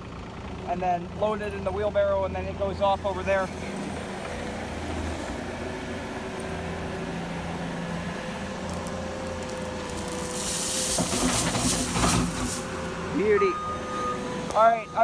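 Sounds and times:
diesel engine running: 0.0 - 15.0
gravel pouring from bucket: 8.7 - 12.8.

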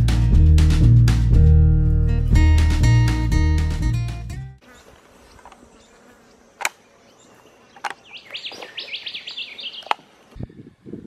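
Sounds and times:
bird chirping: 4.7 - 10.8.

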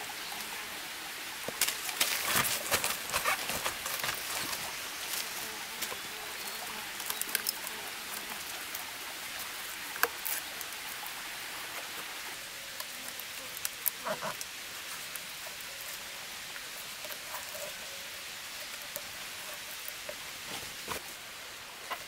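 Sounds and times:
steady rain-like hiss: 0.0 - 22.0
plant fibre crackling and snapping: 1.5 - 6.0, 6.9 - 10.9, 12.7 - 17.4.

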